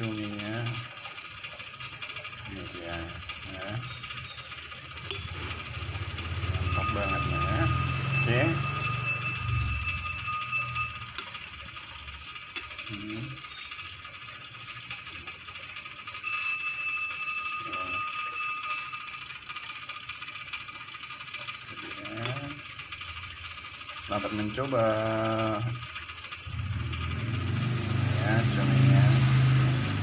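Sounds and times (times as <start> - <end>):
high-pitched background whine: 5.0 - 11.3.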